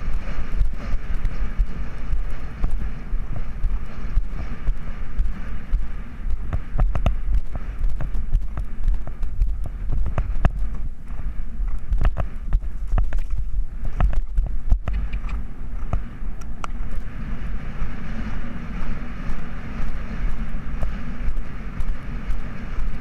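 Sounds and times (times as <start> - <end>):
horse hoofbeats: 0.0 - 16.1
wind buffeting microphone: 0.0 - 23.0.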